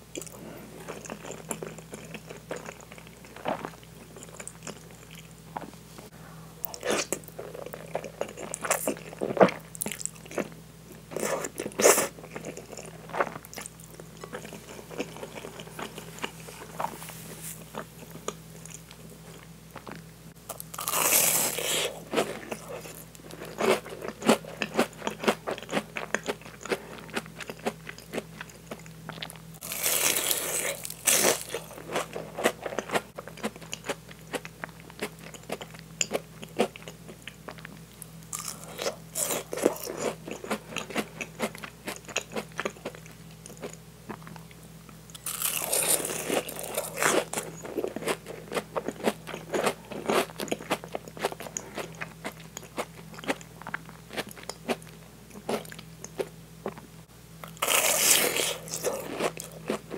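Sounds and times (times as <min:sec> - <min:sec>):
person chewing: 0:00.1 - 0:05.7, 0:06.6 - 0:44.5, 0:45.1 - 0:59.9
biting into crunchy food: 0:45.1 - 0:56.8, 0:57.4 - 0:59.9.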